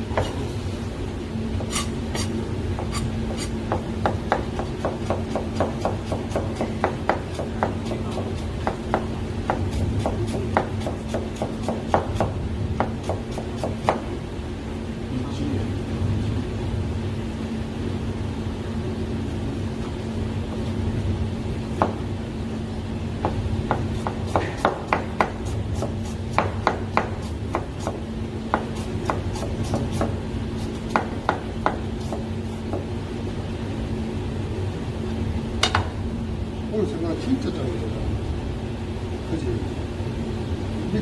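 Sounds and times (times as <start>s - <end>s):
knife chopping on plastic board: 1.6s - 14.0s, 23.2s - 32.9s.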